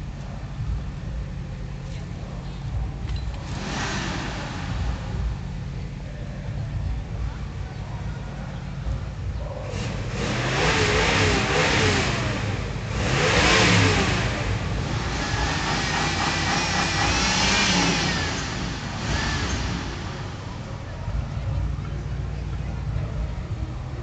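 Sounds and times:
car engines revving: 0.0 - 24.0.

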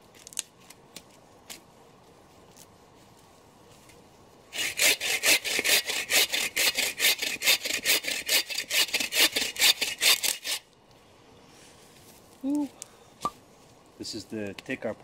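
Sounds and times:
hand saw cutting wood: 4.5 - 10.6.

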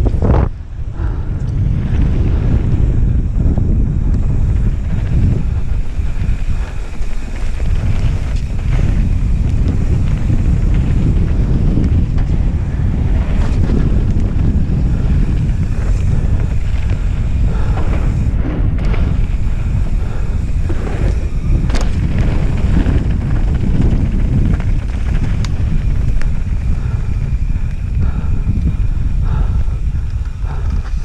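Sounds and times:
wind buffeting on microphone: 0.0 - 31.0
tyres rumbling on dirt: 1.8 - 28.5
bike knocking over bumps: 6.3 - 26.6.

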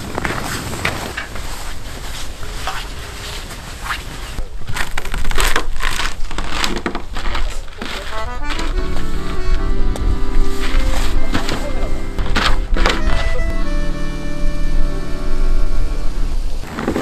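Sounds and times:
boots crunching on snow: 5.8 - 17.0
background music: 8.2 - 16.6.

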